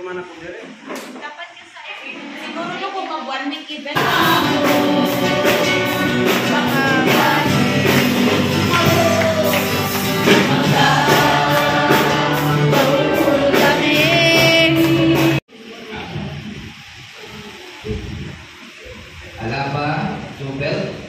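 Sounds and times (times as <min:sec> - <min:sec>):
man singing into a microphone: 0:04.0 - 0:09.2
amplified acoustic guitar strumming: 0:04.0 - 0:15.4
steady beat: 0:04.0 - 0:15.5.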